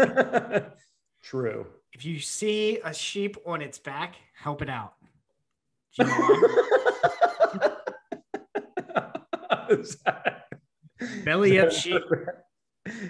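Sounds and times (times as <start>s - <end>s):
men laughing: 0.0s - 0.8s, 6.0s - 13.0s.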